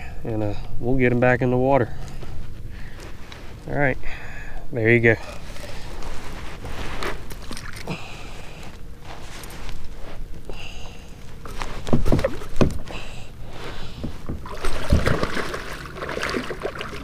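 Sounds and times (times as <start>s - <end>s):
water splashing against hull: 11.2s - 17.0s
gear knocking in plastic kayak: 11.5s - 13.0s, 14.0s - 15.6s.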